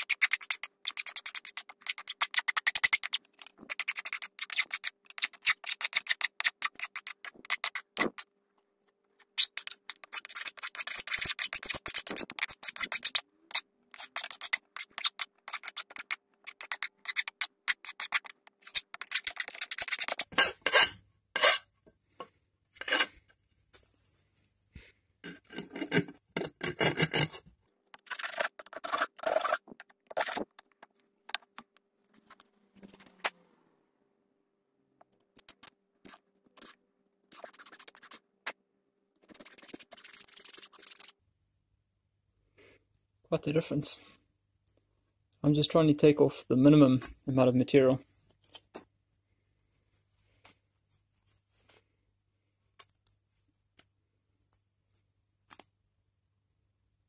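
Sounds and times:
file rasping on metal screw: 9.4s - 21.6s, 22.8s - 23.1s, 28.0s - 29.6s.

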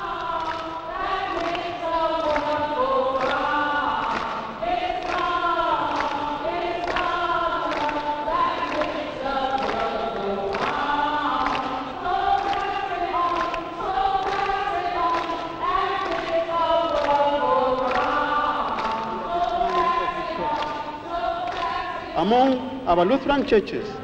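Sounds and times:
choir singing: 0.0s - 23.4s.

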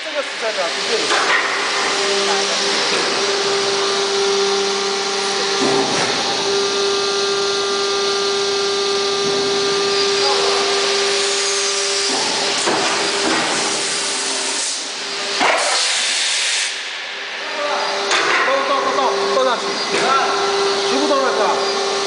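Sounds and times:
injection moulding machine whine: 0.0s - 22.0s.

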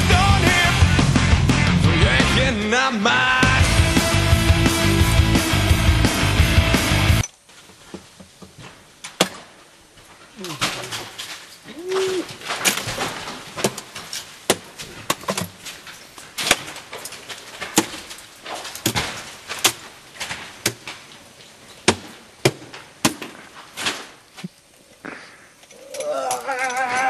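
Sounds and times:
ice tools striking rock and ice: 10.4s - 21.2s, 21.8s - 24.2s.

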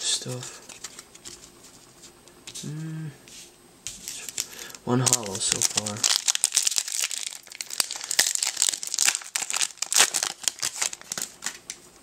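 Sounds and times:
foil wrapper crinkling: 4.1s - 11.9s.

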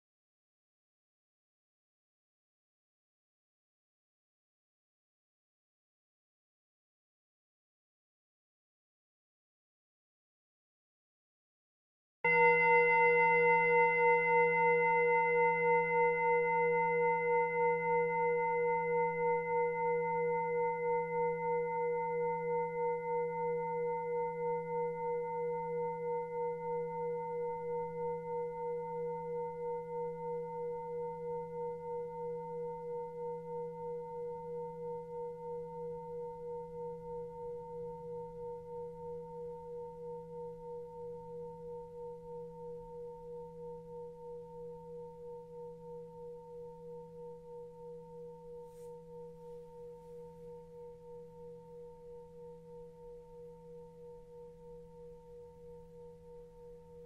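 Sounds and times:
singing bowl ringing: 12.3s - 57.0s.

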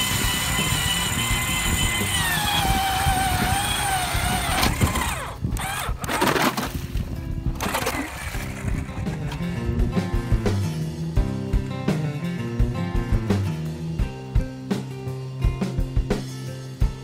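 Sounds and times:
power ice auger drilling: 0.0s - 7.0s, 7.6s - 9.7s.

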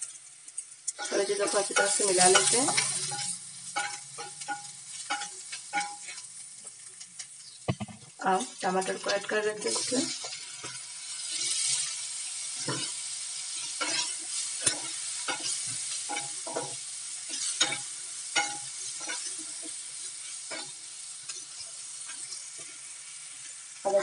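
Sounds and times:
spatula scraping and tapping pan: 0.0s - 8.2s, 8.8s - 11.9s, 12.6s - 19.8s
oil sizzling in a frying pan: 0.0s - 24.0s.

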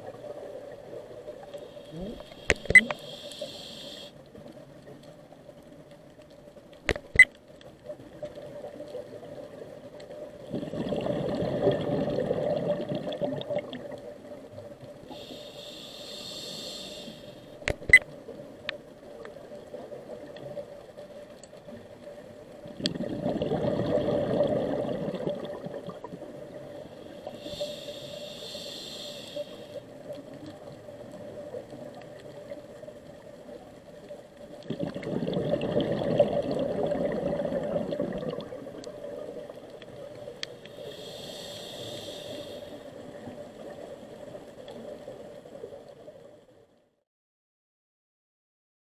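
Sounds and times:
faint steady hum: 0.0s - 46.9s
regulator hissing inhale: 1.4s - 4.3s, 15.1s - 17.6s, 26.8s - 29.9s, 40.4s - 43.0s
sharp clicks: 2.3s - 3.0s, 6.8s - 7.4s
regulator exhaled bubbles: 10.5s - 13.8s, 22.8s - 26.1s, 34.7s - 38.6s.

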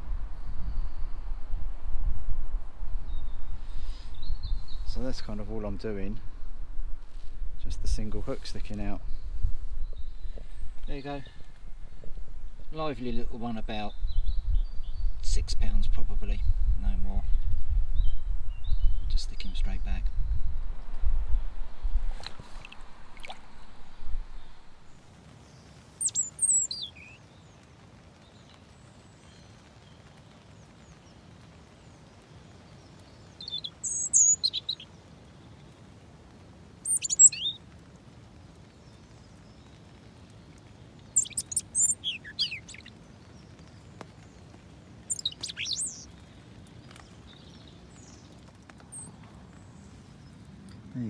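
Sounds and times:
robin singing: 8.4s - 11.6s, 22.6s - 27.6s, 32.8s - 35.0s, 36.8s - 37.6s, 41.0s - 50.8s.

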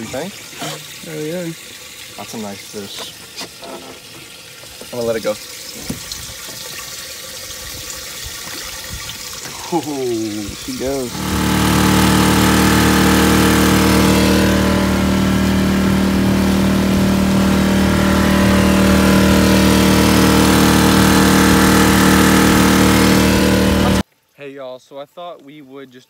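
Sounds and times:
boat wake rushing: 10.8s - 24.0s
outboard motor running: 10.8s - 24.0s.

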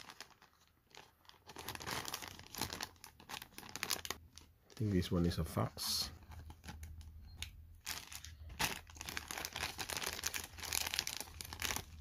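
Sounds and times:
plastic bag tearing: 0.0s - 5.0s, 7.8s - 12.0s
plastic bag crinkling and rustling: 0.0s - 12.0s.

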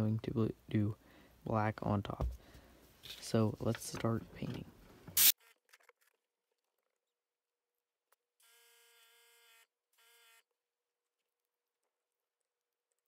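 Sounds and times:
airbrush spraying paint: 5.2s - 5.4s.

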